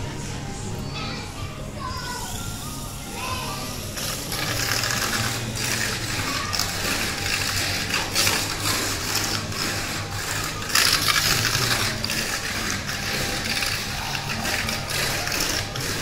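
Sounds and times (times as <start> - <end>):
toy car motor whirring: 0.9 - 16.0
toy car rattling on plastic track: 3.7 - 16.0.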